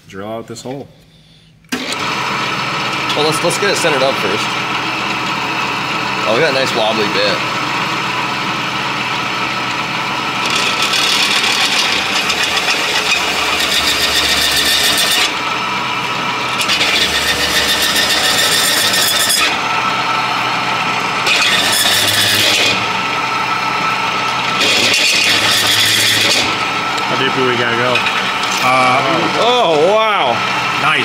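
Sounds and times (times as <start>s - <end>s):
drill press motor hum: 1.7s - 31.0s
drill bit squealing into metal: 10.4s - 15.4s, 16.6s - 19.6s, 21.2s - 22.9s, 24.6s - 26.6s.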